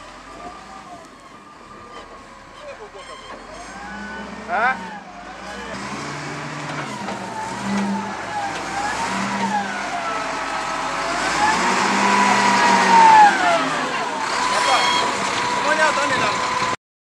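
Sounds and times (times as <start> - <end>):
wheel loader diesel engine revving: 0.0 - 16.8.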